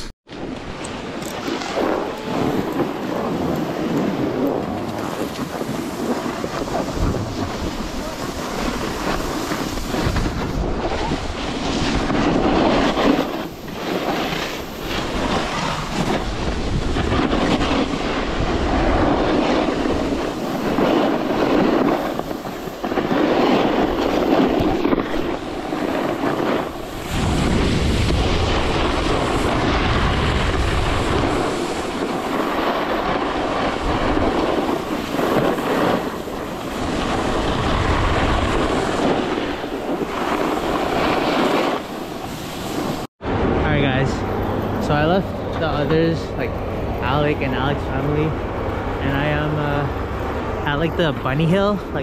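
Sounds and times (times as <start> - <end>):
snowboard scraping over snow: 0.0 - 48.4, 49.0 - 49.9
wind on microphone: 0.0 - 52.0.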